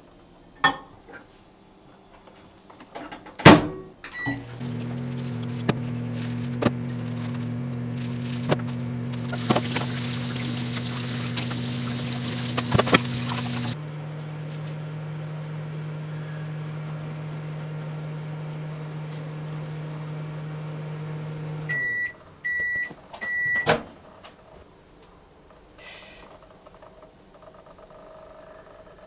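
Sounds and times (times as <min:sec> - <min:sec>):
microwave oven humming: 0:04.1 - 0:22.6
microwave high beeps: 0:04.2 - 0:06.0, 0:18.9 - 0:23.7
tap water running: 0:04.3 - 0:21.8.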